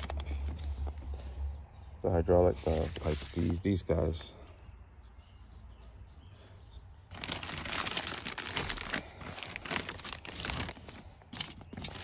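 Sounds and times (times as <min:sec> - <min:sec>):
plastic bag crinkling: 0:00.0 - 0:01.2, 0:07.1 - 0:12.0.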